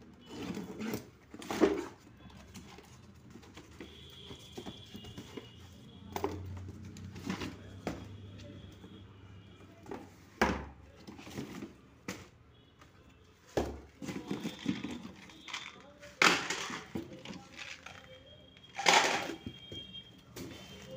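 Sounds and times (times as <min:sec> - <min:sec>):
plastic tubs knocking in a box: 0:13.5 - 0:18.1, 0:18.8 - 0:20.7.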